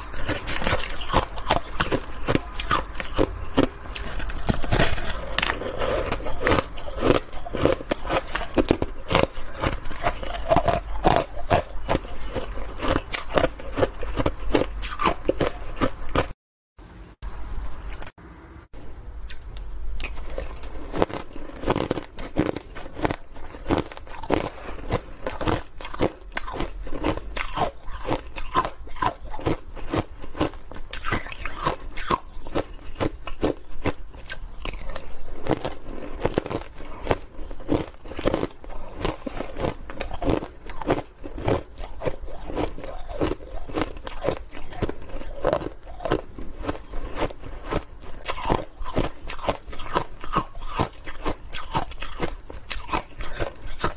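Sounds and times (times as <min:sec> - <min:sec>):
person crunching ice: 0:00.0 - 0:16.4, 0:20.0 - 0:53.9.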